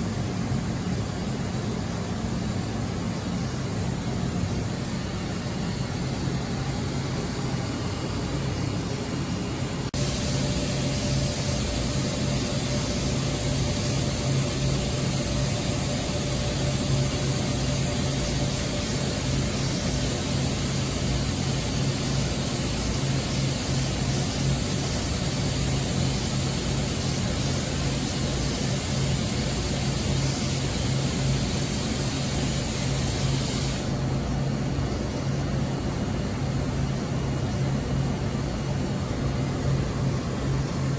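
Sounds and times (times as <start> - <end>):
machine hum and drone: 0.0 - 30.7
faint high machine whine: 0.0 - 40.9.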